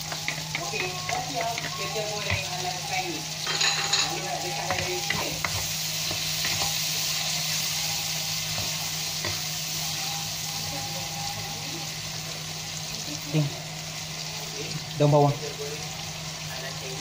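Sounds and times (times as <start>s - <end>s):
spatula scraping and tapping pan: 0.0s - 2.7s, 3.4s - 6.8s
food sizzling in hot oil: 0.0s - 17.0s.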